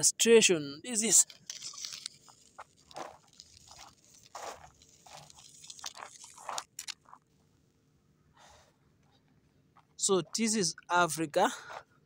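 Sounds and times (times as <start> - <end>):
stick scraping dry soil: 0.9 - 7.3.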